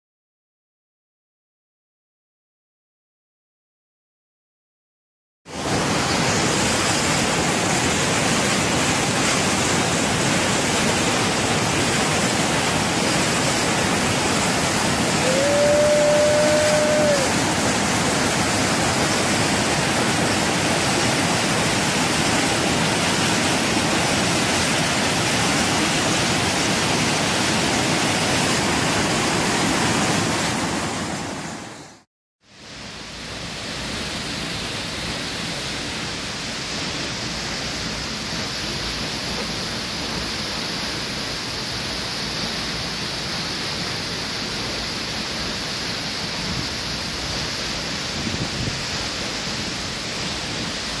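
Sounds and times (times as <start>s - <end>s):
waterfall pouring: 5.5s - 31.6s
flooded river rushing: 5.5s - 32.0s, 32.7s - 51.0s.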